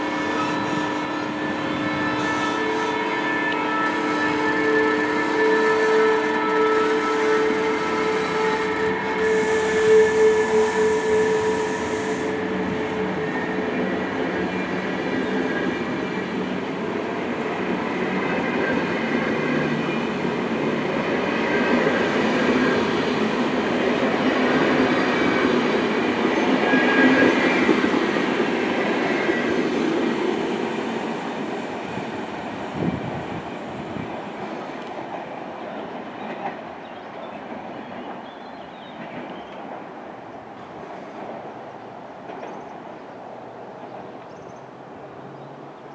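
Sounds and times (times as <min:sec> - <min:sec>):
electric locomotive whine: 0:00.0 - 0:45.9
train wheels clattering on rails: 0:12.6 - 0:40.0, 0:42.2 - 0:43.0.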